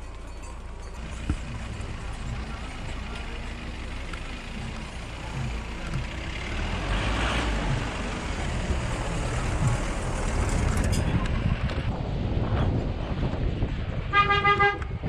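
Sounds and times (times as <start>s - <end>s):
tyres on gravel: 0.0s - 11.9s
jeep engine running: 0.0s - 14.2s
low knocks from bumps: 4.5s - 6.4s, 7.4s - 10.9s.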